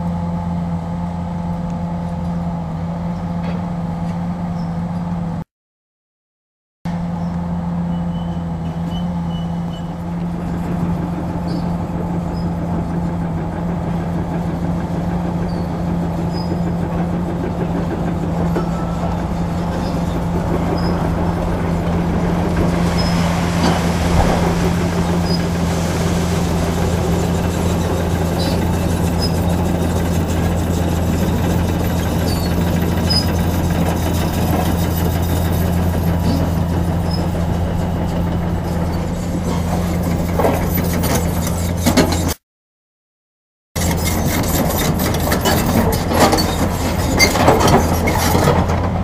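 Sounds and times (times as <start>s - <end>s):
excavator diesel engine droning: 0.0s - 5.4s, 6.9s - 42.4s, 43.8s - 49.0s.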